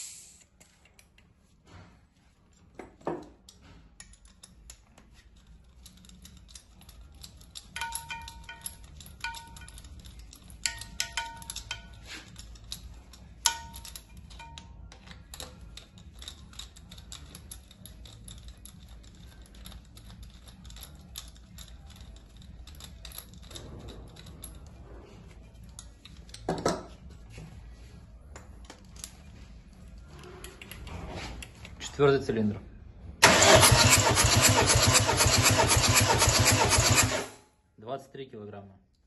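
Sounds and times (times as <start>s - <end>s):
light metallic clicks and clinks: 2.5s - 27.4s.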